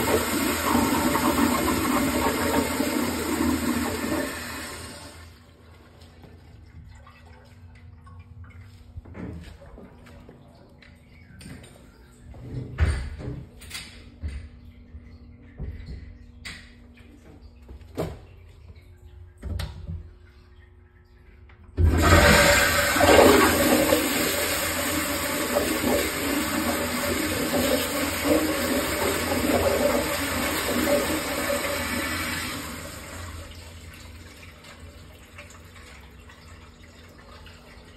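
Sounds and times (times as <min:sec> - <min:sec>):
toilet flushing water rush: 0:00.0 - 0:06.4, 0:21.7 - 0:37.9.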